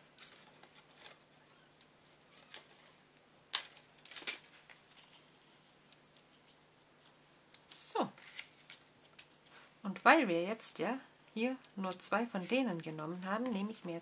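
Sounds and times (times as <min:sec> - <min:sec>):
paper clicks and rustles: 0:00.2 - 0:07.2, 0:08.2 - 0:09.5.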